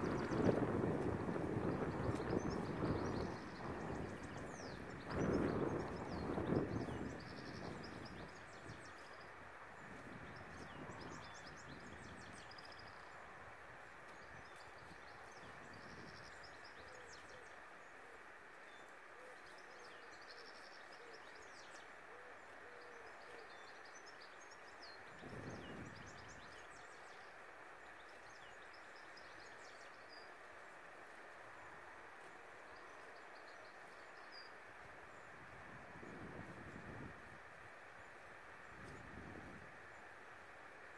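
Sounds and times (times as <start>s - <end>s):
small birds chirping: 0.0s - 13.4s, 14.0s - 40.9s
steady soft hiss: 0.0s - 40.9s.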